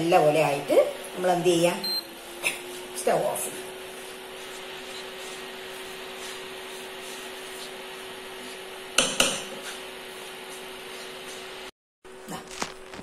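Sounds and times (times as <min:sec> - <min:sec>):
steady hum: 0:00.0 - 0:13.0
spatula stirring flour in a pan: 0:02.5 - 0:11.7
spatula knocking against pan rim: 0:09.0 - 0:09.5.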